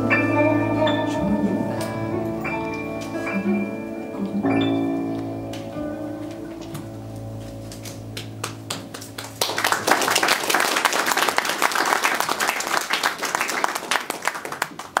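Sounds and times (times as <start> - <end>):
audience applauding: 7.8 - 15.0.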